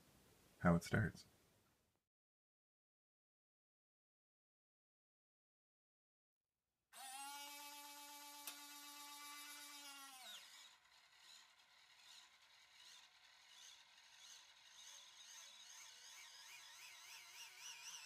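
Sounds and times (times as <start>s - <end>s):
small electric motor whine: 7.0s - 18.0s.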